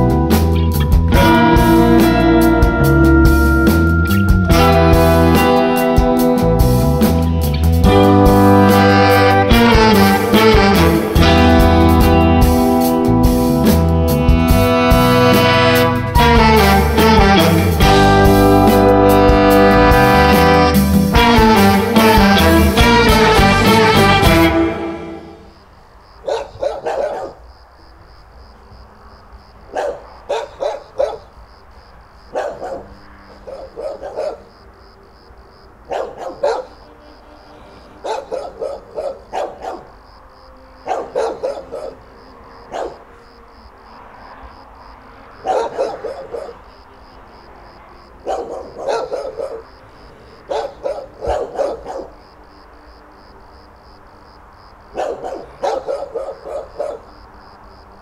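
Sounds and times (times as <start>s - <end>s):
dogs barking: 26.2s - 27.5s, 29.6s - 31.4s, 32.3s - 34.7s, 35.7s - 36.9s, 37.7s - 40.0s, 40.7s - 43.3s, 45.3s - 46.9s, 48.0s - 52.4s, 54.8s - 57.4s.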